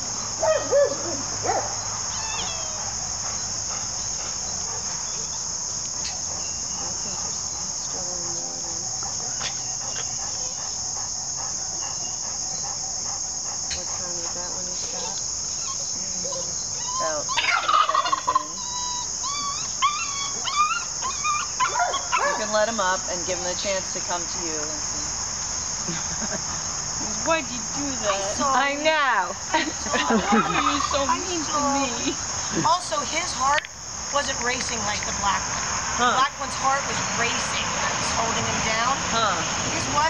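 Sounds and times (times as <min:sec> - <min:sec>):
crickets chirping: 0:00.0 - 0:40.0
puppy whining and yelping: 0:00.5 - 0:02.9, 0:15.5 - 0:22.4.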